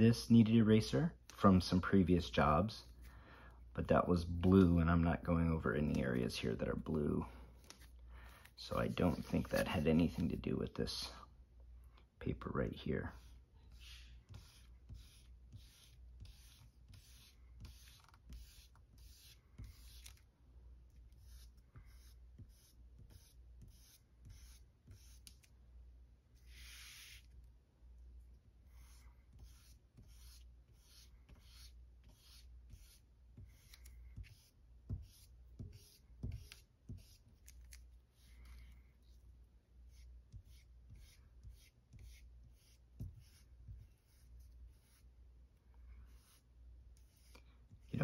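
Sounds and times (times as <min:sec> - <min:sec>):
eraser rubbing on paper: 0:13.0 - 0:20.2, 0:21.1 - 0:25.4, 0:26.4 - 0:27.3, 0:28.7 - 0:38.5, 0:39.8 - 0:45.1, 0:46.1 - 0:48.0.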